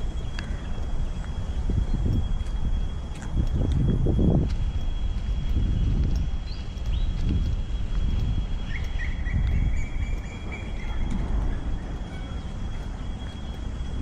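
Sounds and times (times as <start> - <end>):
low pulsing rumble: 0.0 - 14.0
bird chirps: 6.4 - 14.0
steady thin high tone: 7.7 - 14.0
bird whistle: 8.6 - 13.5.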